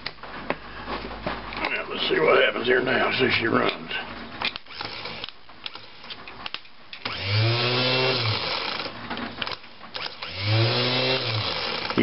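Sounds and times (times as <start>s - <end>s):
starter motor whining: 7.0s - 9.0s, 10.0s - 12.0s.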